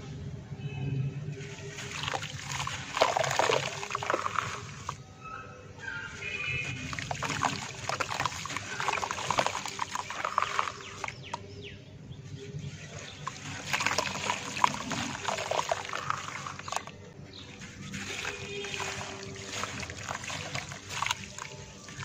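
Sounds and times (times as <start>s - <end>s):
crumbs trickling into steel bowl: 1.4s - 5.0s, 6.1s - 11.6s, 12.3s - 22.0s
dirt crackling crushed by hand: 6.6s - 11.6s, 12.6s - 22.0s.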